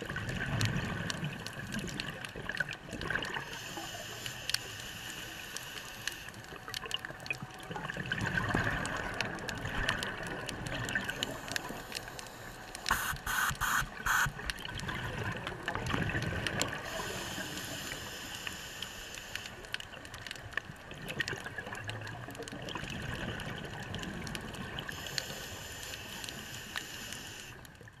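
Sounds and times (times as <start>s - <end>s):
underwater bubbles gurgling: 0.0s - 28.0s
sharp clicks: 11.5s - 14.6s.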